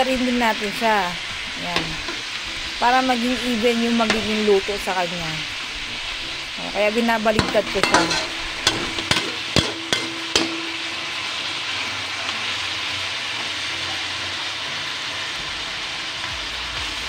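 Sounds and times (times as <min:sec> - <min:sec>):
meat sizzling in a wok: 0:00.0 - 0:17.0
metal spatula clanking on pan: 0:01.7 - 0:02.2, 0:07.3 - 0:11.3.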